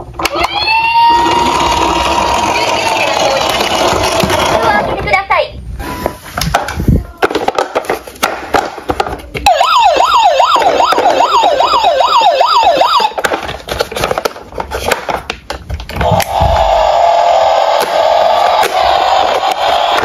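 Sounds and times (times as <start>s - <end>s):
toy police car siren: 0.3s - 2.2s, 9.5s - 13.2s, 16.0s - 20.0s
hands handling plastic toy: 12.7s - 16.2s.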